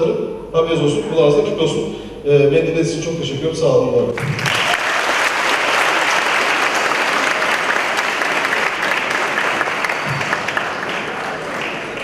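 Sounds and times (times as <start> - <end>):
audience clapping: 4.2 - 12.0.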